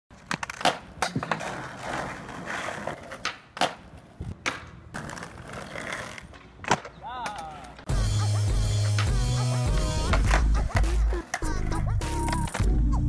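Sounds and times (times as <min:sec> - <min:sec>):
skateboard clacks and knocks: 0:00.1 - 0:07.8, 0:08.8 - 0:11.5
skateboard wheels rolling: 0:00.1 - 0:13.0.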